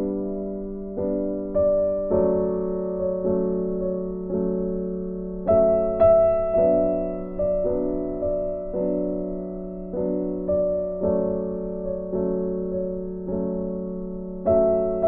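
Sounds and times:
soft piano chords: 0.0s - 15.0s.

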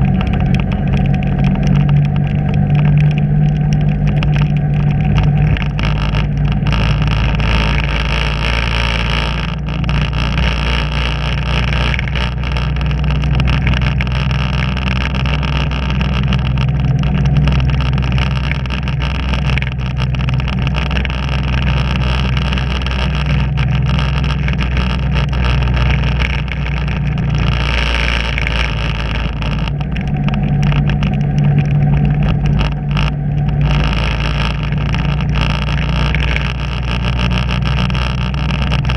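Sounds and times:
road noise: 0.0s - 38.9s
vehicle engine droning: 0.0s - 38.9s.

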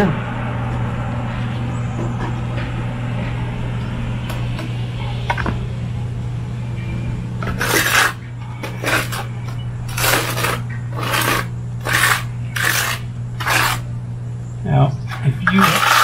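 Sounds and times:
trowel scraping wet mortar: 7.5s - 9.3s, 9.9s - 13.8s, 15.1s - 16.0s.

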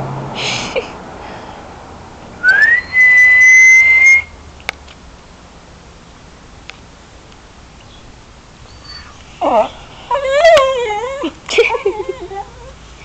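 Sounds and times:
person whistling: 2.4s - 4.3s.

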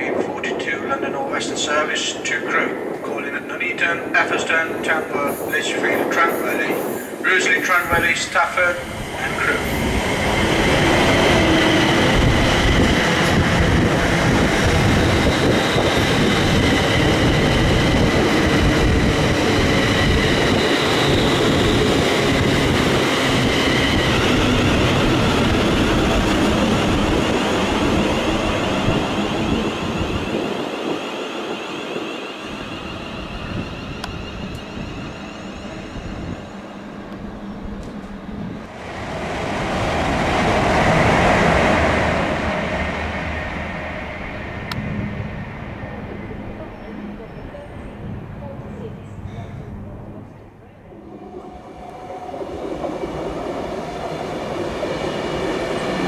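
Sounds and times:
train rumbling past: 0.0s - 56.0s
high whine: 6.4s - 48.3s.

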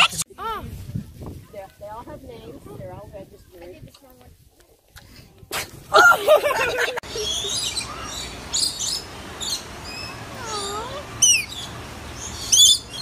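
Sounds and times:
parrots chirping and squawking: 7.0s - 13.0s.

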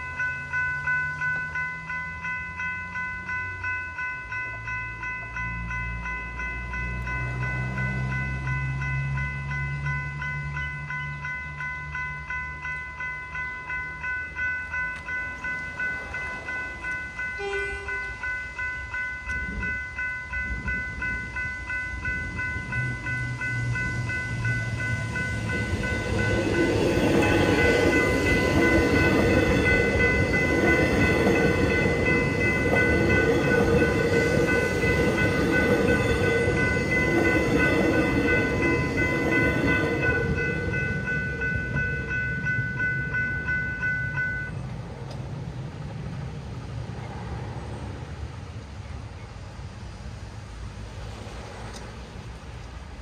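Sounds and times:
level crossing bells ringing: 0.0s - 44.6s
electric train passing: 0.0s - 53.0s.

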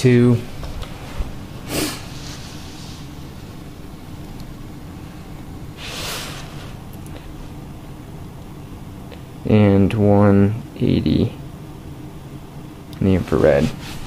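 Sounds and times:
water heating low rumble: 0.0s - 14.0s
brief hissing: 5.8s - 6.7s.

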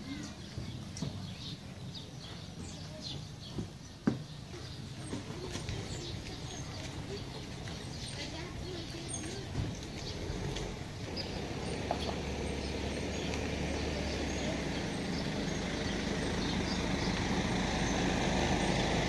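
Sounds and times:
vehicle engine humming: 4.4s - 19.0s.

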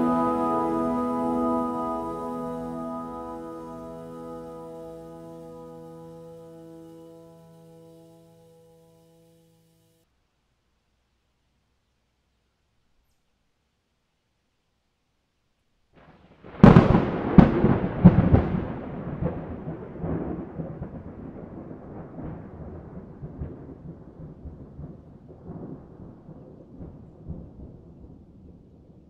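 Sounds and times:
rolling thunder rumble: 16.4s - 29.0s
thunder cracks: 16.4s - 29.0s.

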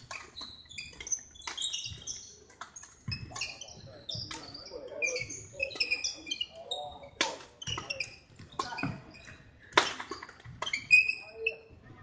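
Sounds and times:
racket hitting shuttlecock: 0.0s - 3.6s, 9.7s - 10.9s
shoes squeaking on wooden floor: 0.0s - 12.0s.

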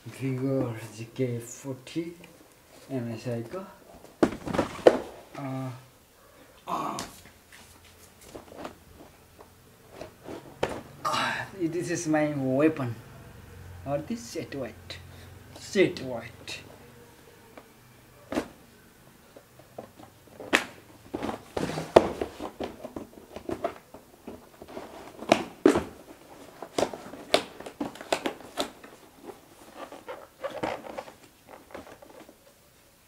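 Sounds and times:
cardboard box being opened: 20.5s - 32.3s.

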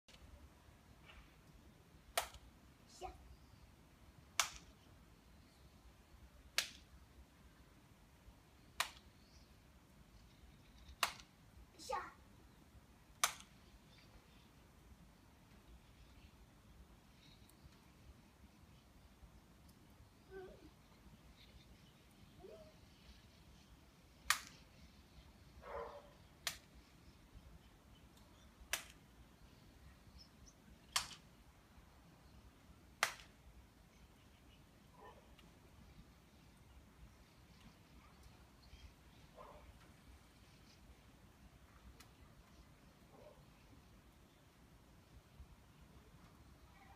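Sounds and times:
child's hand slaps: 2.2s - 2.4s, 4.4s - 4.7s, 6.6s - 6.8s, 8.8s - 9.0s, 11.0s - 11.3s, 13.2s - 13.5s, 24.3s - 24.6s, 26.4s - 26.7s, 28.7s - 29.0s, 30.9s - 31.2s, 33.0s - 33.3s
hands smacking: 13.2s - 13.5s.

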